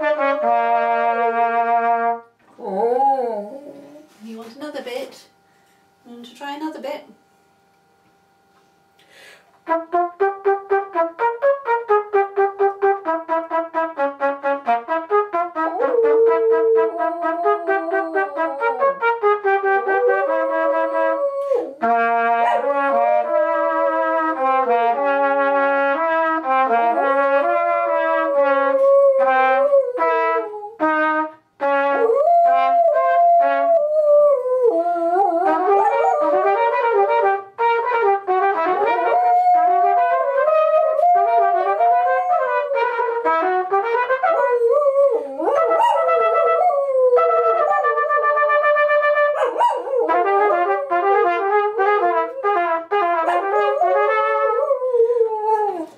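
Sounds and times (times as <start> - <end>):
trumpet playing a tune: 0.0 - 2.4, 9.6 - 55.9
small dog howling: 15.8 - 19.0, 32.0 - 36.4, 49.4 - 50.2.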